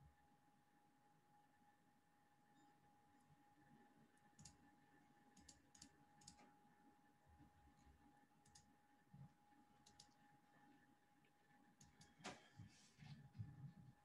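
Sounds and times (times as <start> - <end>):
faint steady hum: 0.0 - 14.0
faint clicks: 5.4 - 6.5, 8.4 - 8.7, 9.8 - 10.2.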